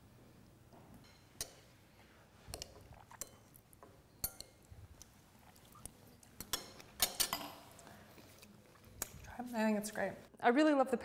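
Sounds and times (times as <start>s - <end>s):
cutlery clinking on ceramic plate: 6.4s - 7.7s.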